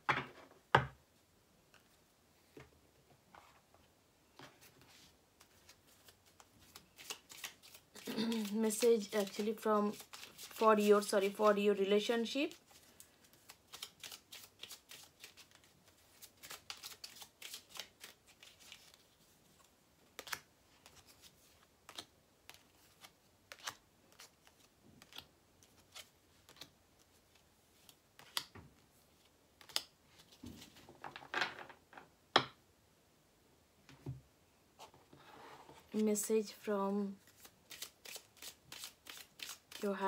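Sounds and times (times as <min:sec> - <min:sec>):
cards being shuffled: 0:04.6 - 0:11.5, 0:12.5 - 0:28.5, 0:29.1 - 0:31.3, 0:37.2 - 0:40.0.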